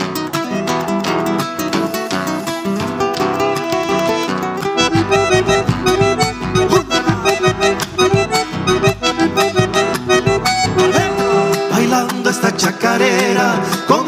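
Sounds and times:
accordion melody: 0.0 - 12.6
guitar: 0.0 - 14.0
steady pulsing beat: 4.8 - 11.4.

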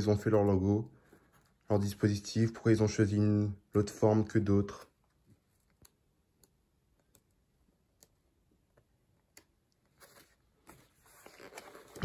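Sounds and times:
book pages being turned: 9.6 - 12.0
paper rustle: 9.9 - 12.0.

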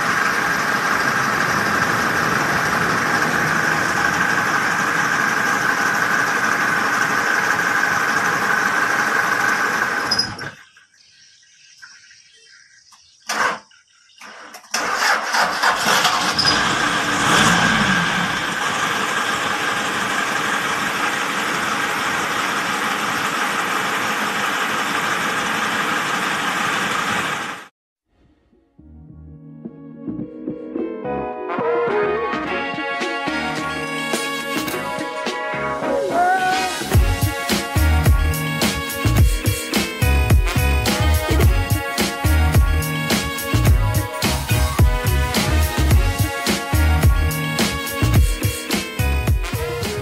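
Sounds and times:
diesel engine idling: 0.0 - 10.3, 15.0 - 27.7.

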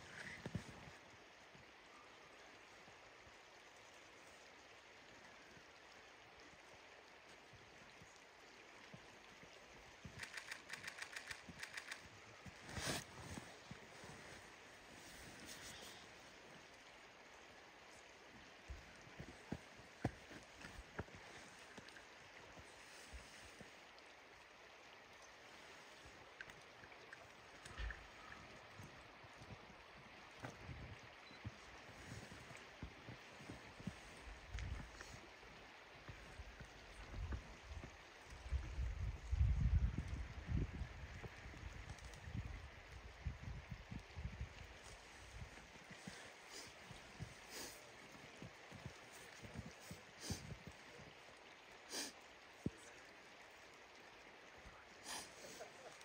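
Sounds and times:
flowing river: 0.0 - 56.0
rapid sharp clicks: 10.2 - 12.0.

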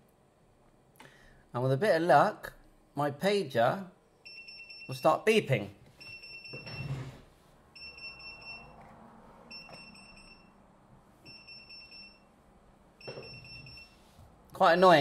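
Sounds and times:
pager beeping: 7.8 - 8.7, 11.3 - 12.3, 13.0 - 14.0.

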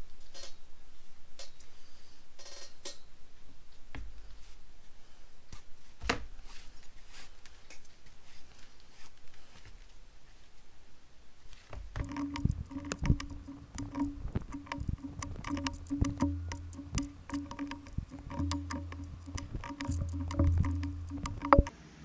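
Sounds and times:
soft rustles and clicks: 11.5 - 21.7
music with bass and beat: 12.0 - 21.7.

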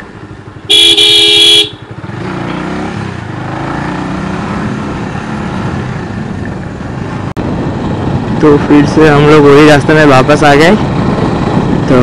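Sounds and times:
road and wind noise: 0.0 - 12.0
motorcycle horn beep: 0.7 - 1.9.

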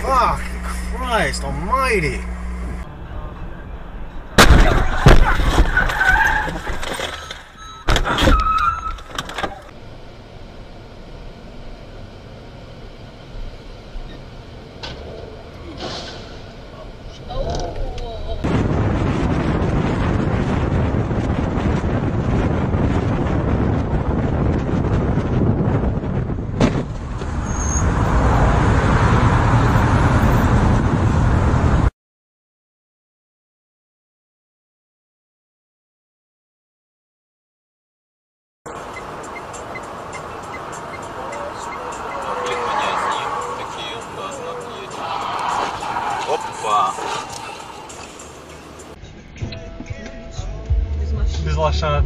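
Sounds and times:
car driving road noise: 0.0 - 31.9, 38.7 - 52.0
wind rush: 18.2 - 31.9.

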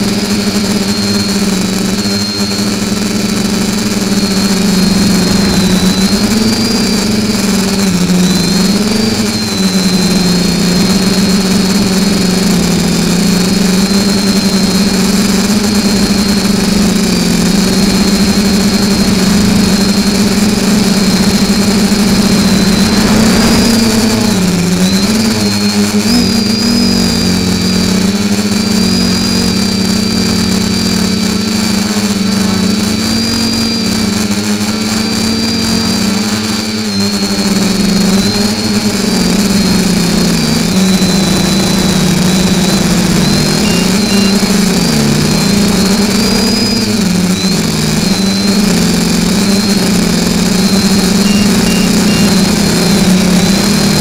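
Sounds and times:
drone propellers buzzing: 0.0 - 54.0.

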